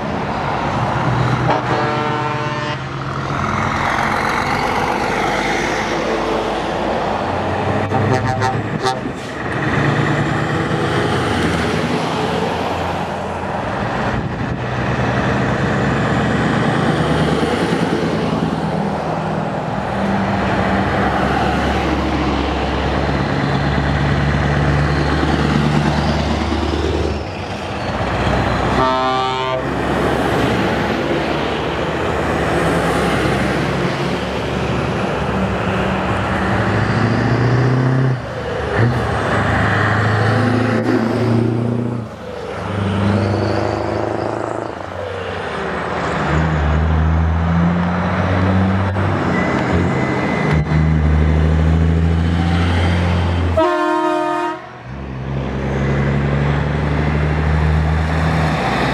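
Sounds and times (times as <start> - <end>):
heavy trucks passing: 0.0 - 58.9
truck horn: 1.4 - 3.0, 7.8 - 9.3, 28.7 - 29.8, 53.4 - 54.8.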